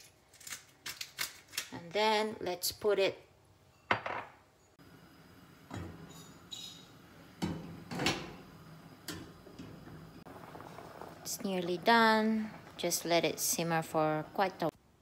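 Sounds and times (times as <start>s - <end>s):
pot boiling hiss: 4.8s - 14.8s.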